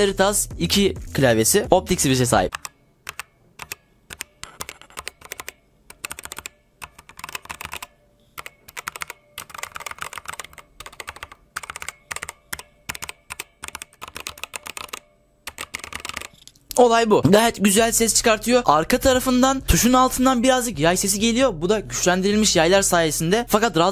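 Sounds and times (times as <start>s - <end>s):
rapid keyboard key clicks: 2.5s - 16.4s.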